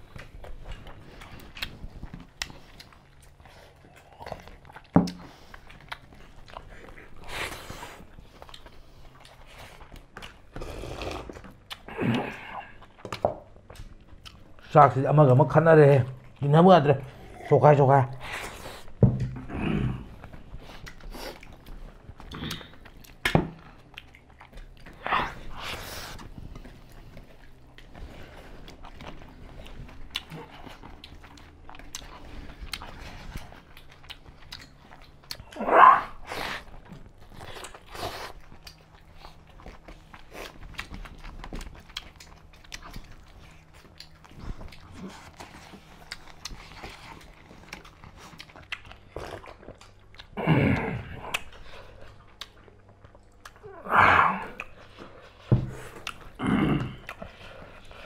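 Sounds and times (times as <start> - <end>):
chewing and crunching food: 0.0 - 58.0.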